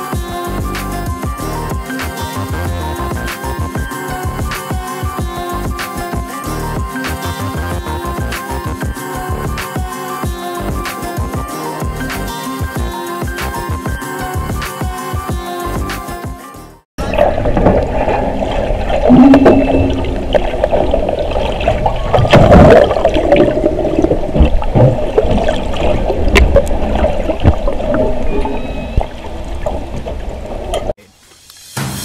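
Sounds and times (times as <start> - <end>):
rush of water and bubbles: 17.0 - 31.0
whale calls underwater: 19.0 - 20.6, 27.8 - 30.2.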